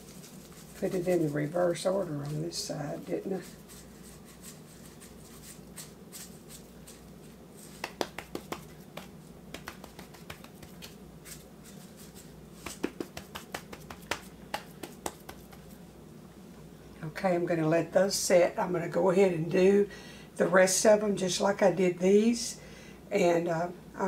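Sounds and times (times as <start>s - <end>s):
seasoning shaker rattling: 0.0s - 15.8s.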